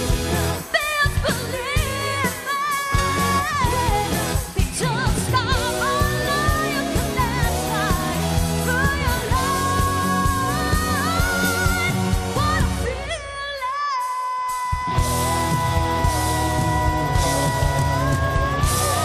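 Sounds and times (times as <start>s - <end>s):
amplified band with steady beat: 0.0s - 19.0s
woman singing into a microphone: 0.5s - 19.0s.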